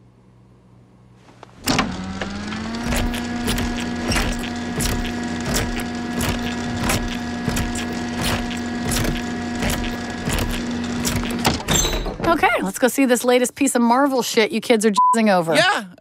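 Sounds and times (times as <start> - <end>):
machine electric hum: 0.0 - 12.7
rhythmic mechanical knocking: 2.8 - 11.7.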